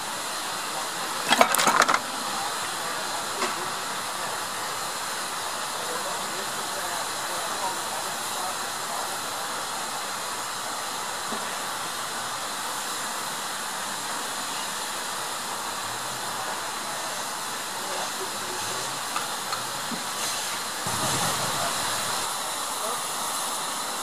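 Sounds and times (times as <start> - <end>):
steam hissing: 0.0 - 24.0.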